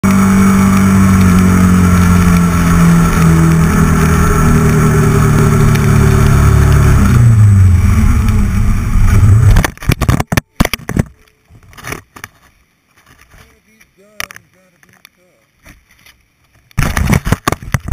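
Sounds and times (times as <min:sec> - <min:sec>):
motorcycle engine running: 0:00.0 - 0:09.7
sharp knocks and clatter: 0:16.7 - 0:17.9.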